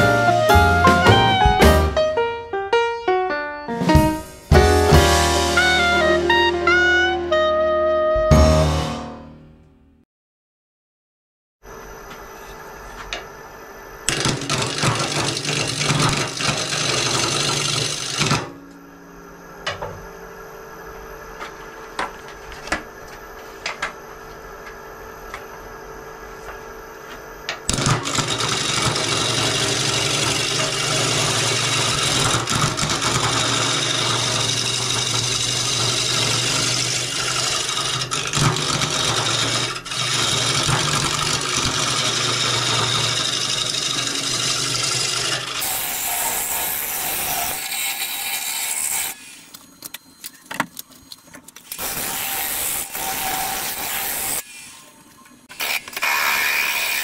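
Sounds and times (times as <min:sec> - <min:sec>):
gouge cutting wood: 0:27.7 - 0:49.2
lathe motor hum: 0:28.1 - 0:45.7.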